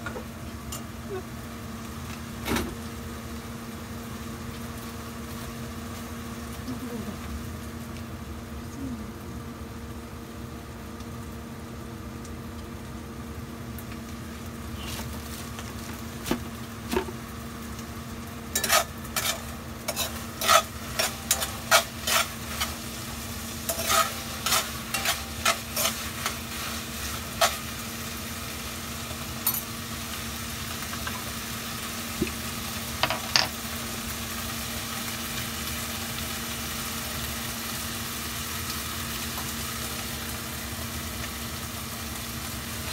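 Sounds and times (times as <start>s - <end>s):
saucepan hissing on gas burner: 12.8s - 42.9s
utensils clinking against dishes: 18.5s - 22.7s, 23.7s - 26.4s, 29.4s - 29.7s.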